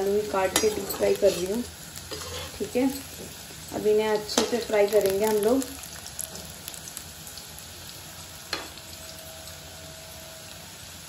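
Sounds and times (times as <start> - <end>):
potatoes sizzling in oil: 0.0 - 11.0
metal spoon tapping pan: 0.5 - 1.0.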